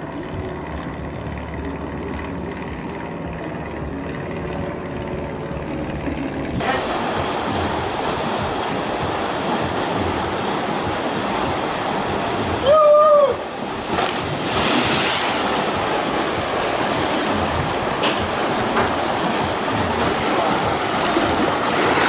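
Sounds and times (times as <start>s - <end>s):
water rushing and splashing: 4.8s - 22.0s
person shouting: 12.6s - 13.4s
rider splashing into pool: 13.8s - 17.4s.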